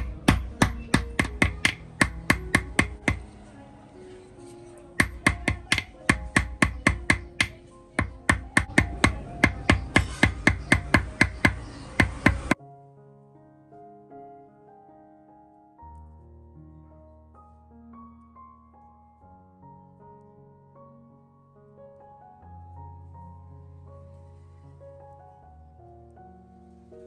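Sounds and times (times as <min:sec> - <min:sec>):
hammer striking metal: 0:00.0 - 0:03.3, 0:05.0 - 0:12.6
soft piano music: 0:00.0 - 0:27.0.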